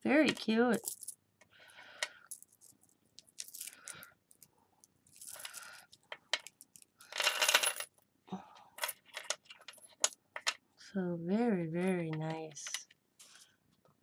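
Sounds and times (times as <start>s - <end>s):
metal charms clinking: 2.2s - 7.9s.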